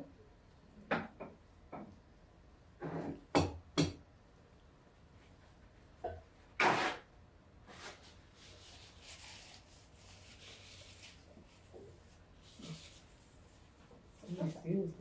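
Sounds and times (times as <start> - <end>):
paper napkin rustling: 7.7 - 15.0.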